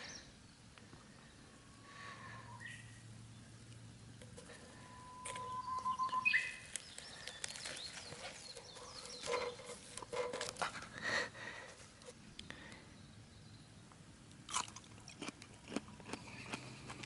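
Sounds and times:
dry husk leaves tearing and crackling: 6.6 - 10.8.

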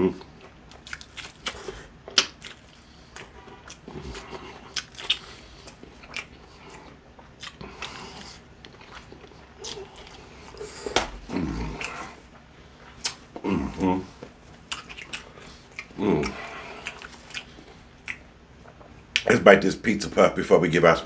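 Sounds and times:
crunching fried chicken: 0.1 - 12.1, 12.9 - 18.2
wet chewing: 0.2 - 19.3.

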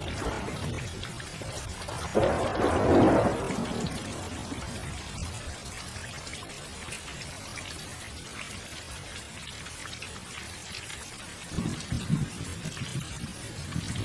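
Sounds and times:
thunder rumbling: 0.0 - 6.0, 11.5 - 14.0
rain pattering: 0.0 - 14.0.

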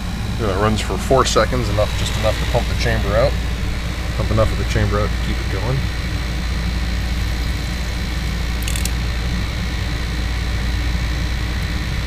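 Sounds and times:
air conditioner humming: 0.0 - 12.0
high clicking rattle: 8.6 - 9.0.

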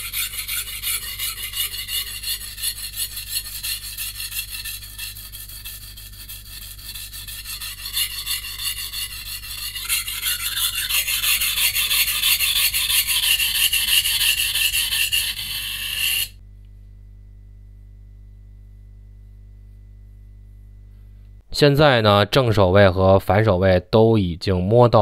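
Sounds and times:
knife scraping on whetstone: 0.0 - 16.4.

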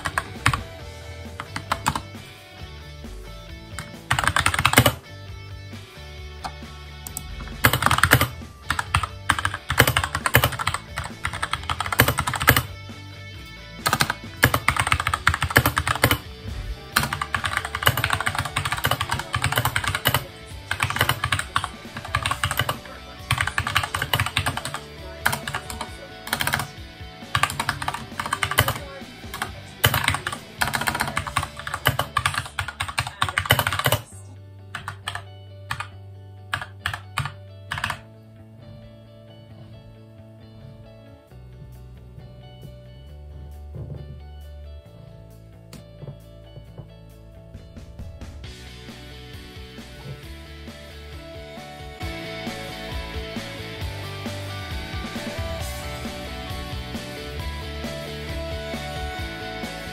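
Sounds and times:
fast typing on computer keyboard: 0.0 - 0.8, 1.4 - 2.1, 3.8 - 5.0, 7.1 - 12.7, 13.8 - 16.3, 17.0 - 34.1, 34.8 - 35.9, 36.5 - 38.0
background music: 0.0 - 59.9.

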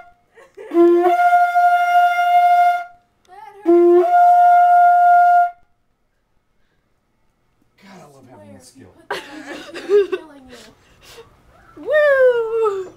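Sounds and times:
conch shell trumpet blasts: 0.0 - 3.0, 3.6 - 5.7.

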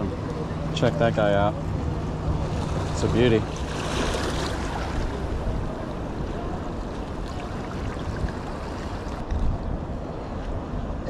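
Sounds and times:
wind rumble on microphone: 0.0 - 11.0
small waves lapping against rocks: 2.4 - 5.3.

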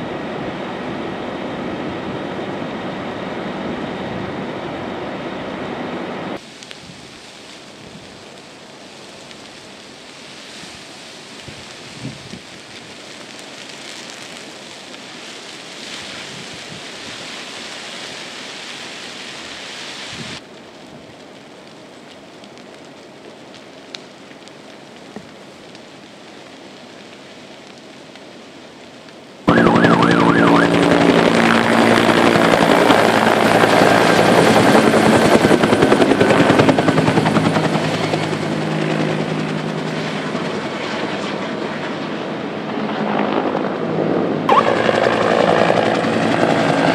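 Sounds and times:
steady hiss: 6.4 - 29.4
helicopter rotor beating: 29.5 - 46.9.

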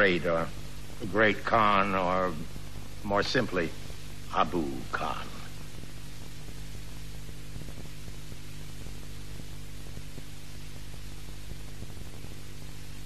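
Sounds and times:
electrical mains hum: 0.0 - 13.0
tape hiss: 0.0 - 13.0.

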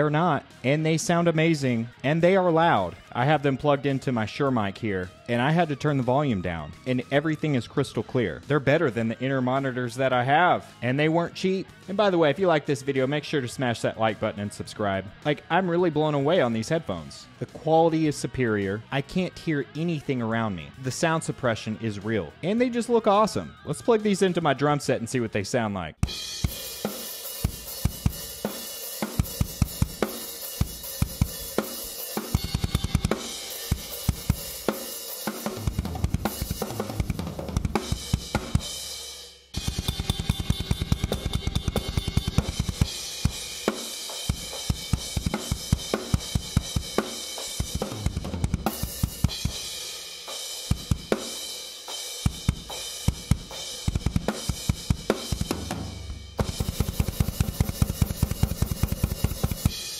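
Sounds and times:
crash cymbals and hi-hat: 26.0 - 37.1, 37.7 - 59.9
drum kit beat: 26.0 - 59.9.

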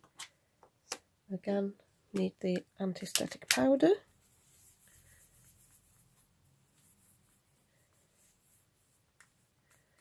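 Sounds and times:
brush wiping over cardstock: 4.1 - 10.0.

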